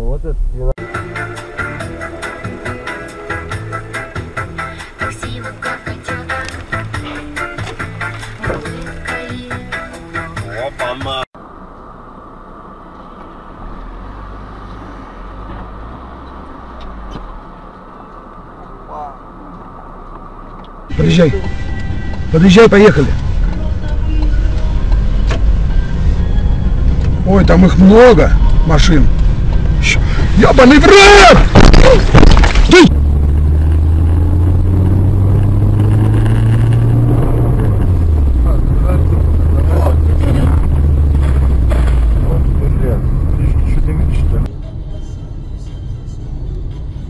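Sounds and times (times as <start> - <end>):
car engine and tyre noise: 0.0 - 47.0
man's voice: 10.2 - 11.3, 29.8 - 33.0, 38.3 - 40.8, 42.1 - 44.5
low rumble: 20.9 - 45.3.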